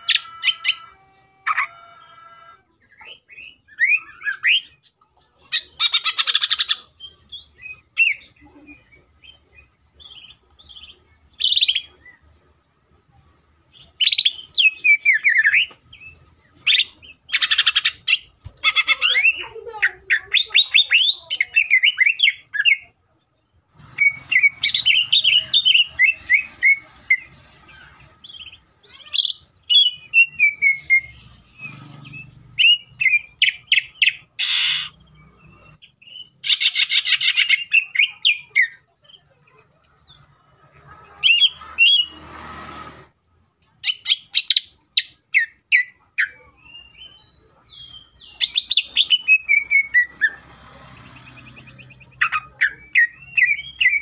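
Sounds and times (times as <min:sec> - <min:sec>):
bird singing trills and whistles: 0:03.0 - 0:04.9, 0:29.2 - 0:39.2, 0:43.8 - 0:50.4, 0:51.0 - 0:54.0.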